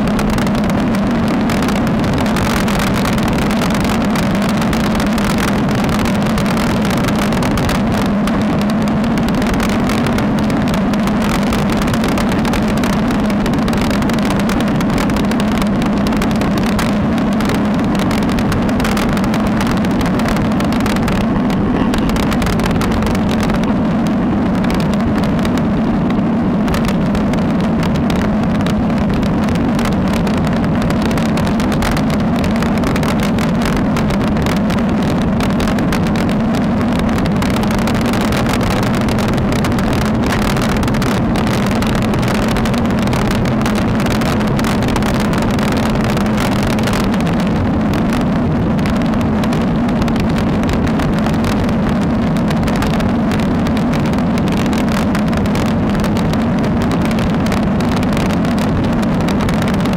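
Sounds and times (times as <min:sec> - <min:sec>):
bike road rumble: 0:00.0 - 0:59.9
wind noise: 0:00.0 - 0:59.9.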